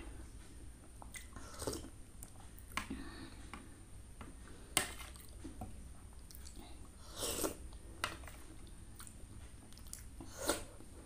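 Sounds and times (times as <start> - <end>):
mouth eating noises: 9.0 - 10.8.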